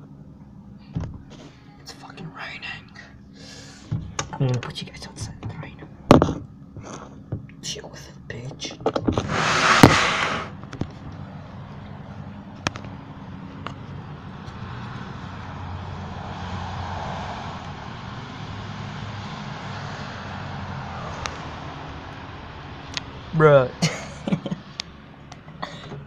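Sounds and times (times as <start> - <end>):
car driving on wet road: 14.6 - 23.3.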